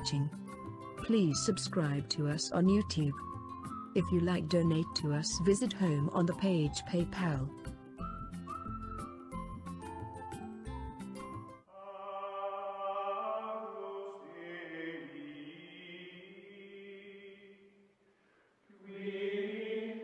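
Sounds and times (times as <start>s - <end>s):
chant-like voices holding long notes: 11.7s - 17.6s, 18.8s - 20.0s.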